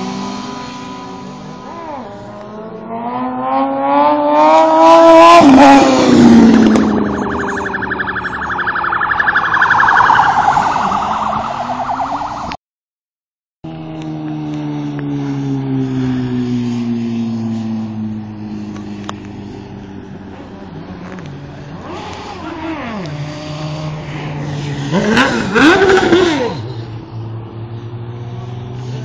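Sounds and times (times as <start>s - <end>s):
motorcycle engine revving: 0.0s - 11.9s, 13.7s - 29.0s.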